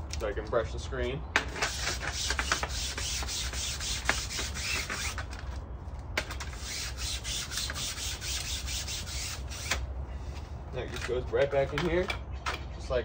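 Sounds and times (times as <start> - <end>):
brush scrubbing window screen mesh: 1.6 - 5.2.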